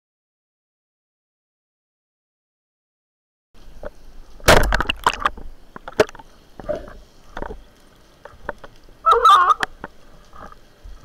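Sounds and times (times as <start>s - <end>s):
speargun firing clatter: 4.5s - 5.3s.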